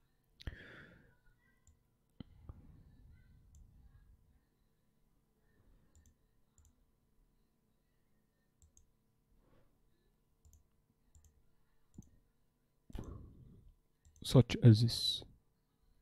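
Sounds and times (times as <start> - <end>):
computer mouse clicks: 5.9 - 6.8, 8.6 - 8.9, 10.4 - 12.2.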